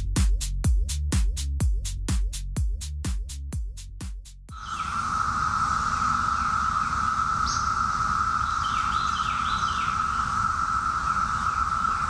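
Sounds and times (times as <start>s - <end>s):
birds chirping: 4.5s - 12.0s
cicadas droning: 4.5s - 12.0s
short falling bird calls: 4.5s - 12.0s.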